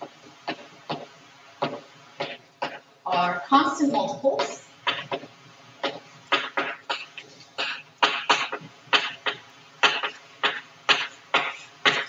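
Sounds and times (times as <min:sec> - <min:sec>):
chalk tapping and scratching: 0:04.9 - 0:12.0.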